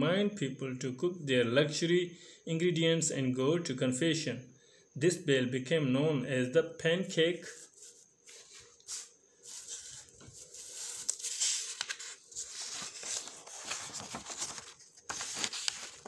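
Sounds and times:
paper rustling and crinkling: 0:07.5 - 0:16.0.

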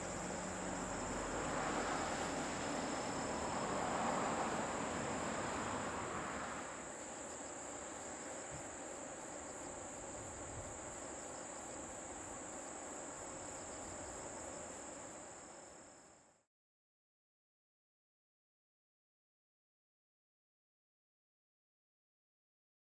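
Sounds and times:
insects trilling: 0:00.0 - 0:16.4
pulsing insect chirp: 0:00.0 - 0:16.4.

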